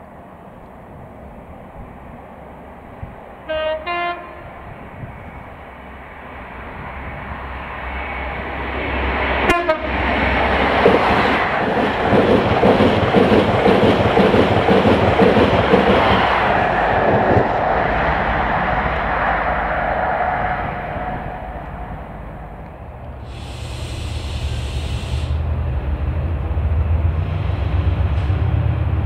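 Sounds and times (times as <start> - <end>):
train rumble and wheel clatter: 0.0 - 29.0
train horn notes: 3.5 - 4.7, 9.5 - 10.0.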